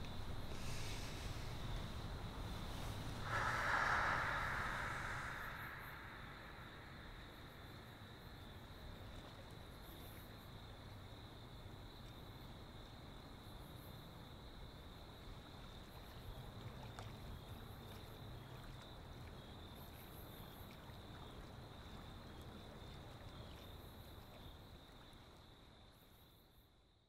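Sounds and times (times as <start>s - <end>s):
low rumbling noise: 0.0s - 8.8s
high insect chorus: 0.0s - 26.5s.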